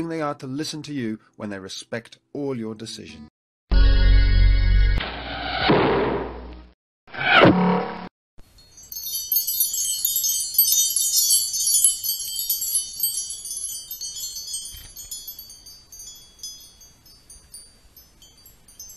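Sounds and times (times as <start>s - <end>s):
falling swoosh effect: 5.0s - 6.4s
high tinkling chimes: 8.4s - 18.9s.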